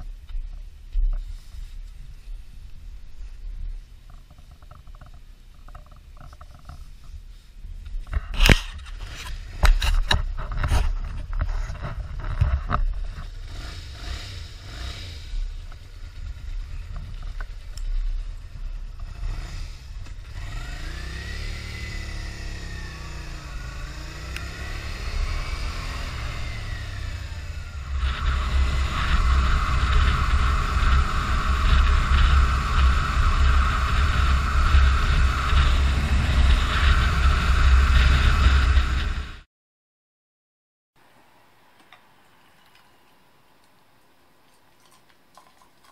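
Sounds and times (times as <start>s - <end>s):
motorcycle engine revving: 13.0s - 39.5s.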